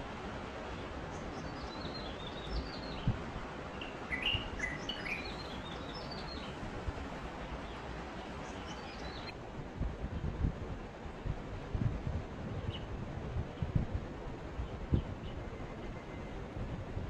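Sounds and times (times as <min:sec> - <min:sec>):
background hiss: 0:00.0 - 0:14.7
bird chirping song: 0:00.7 - 0:06.6, 0:07.6 - 0:09.3.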